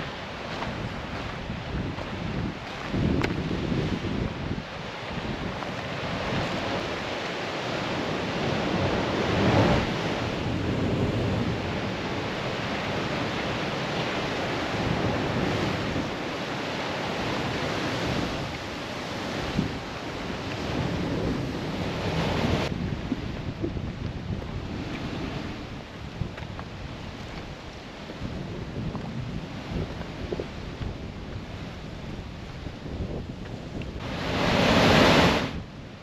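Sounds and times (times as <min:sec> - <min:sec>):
surf washing against rocks: 0:00.0 - 0:35.7
wind blowing on microphone: 0:00.0 - 0:36.0.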